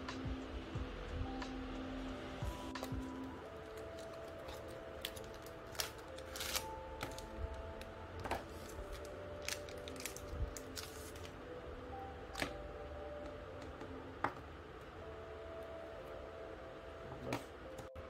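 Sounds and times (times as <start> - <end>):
soft background music: 0.0 - 18.0
cardboard and foil bag rustling: 3.7 - 7.2.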